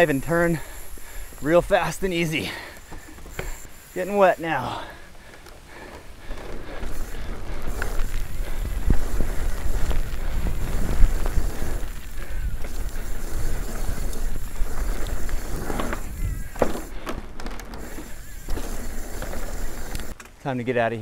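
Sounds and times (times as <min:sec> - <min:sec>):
bike rattling: 0:00.0 - 0:20.2
bike tyres rolling on dirt: 0:00.0 - 0:20.2
wheels rolling on wooden ramp: 0:00.0 - 0:20.2
steady rushing noise: 0:03.6 - 0:16.6.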